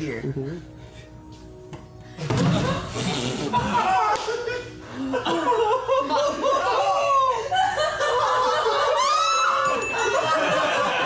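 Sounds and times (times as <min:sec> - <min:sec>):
people laughing and snickering: 0:02.2 - 0:11.0.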